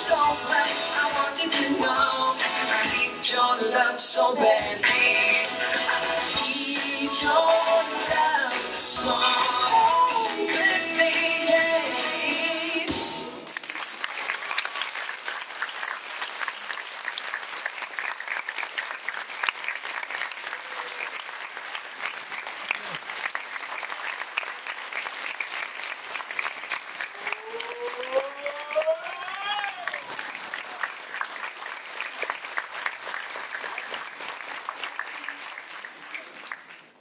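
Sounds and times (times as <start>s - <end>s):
dance music: 0.0s - 13.4s
audience applauding: 13.4s - 37.0s.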